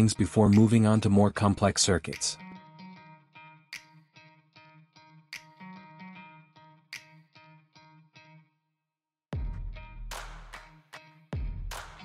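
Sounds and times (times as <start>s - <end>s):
beat with deep bass hits: 9.4s - 10.5s.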